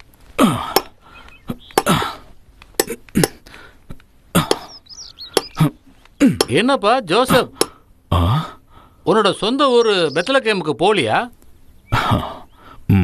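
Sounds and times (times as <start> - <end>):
sharp knocks: 5.3 - 5.7.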